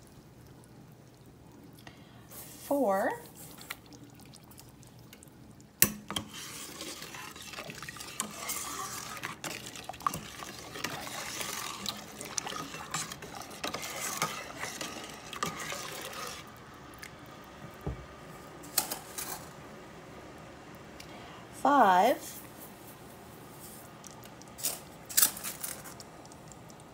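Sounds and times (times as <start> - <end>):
liquid swishing: 0.0 - 17.2
spoon stirring in pot: 2.4 - 17.2.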